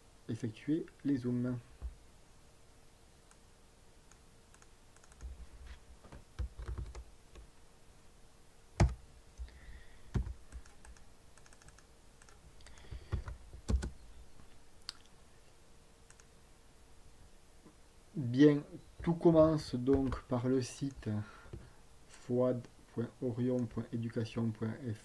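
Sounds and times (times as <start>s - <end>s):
keyboard keystrokes: 6.4s - 7.0s, 10.1s - 13.9s
mouse clicks: 16.1s - 16.3s.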